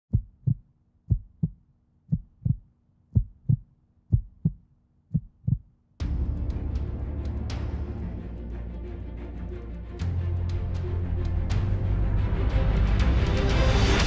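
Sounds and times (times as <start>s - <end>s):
heartbeat thumps: 0.1s - 5.7s.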